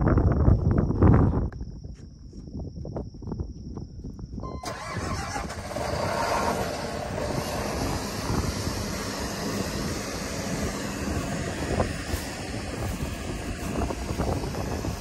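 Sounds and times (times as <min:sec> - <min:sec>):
diesel engine starting and running: 0:04.4 - 0:15.0.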